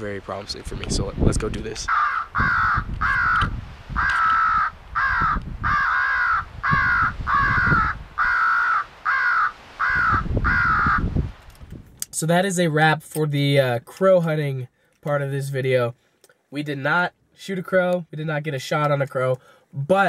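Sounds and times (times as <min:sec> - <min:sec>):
harsh crow caws: 0:01.9 - 0:11.1.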